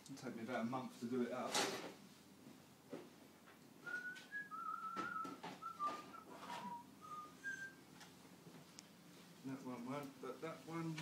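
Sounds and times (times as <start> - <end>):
person whistling a tune: 3.8 - 7.8.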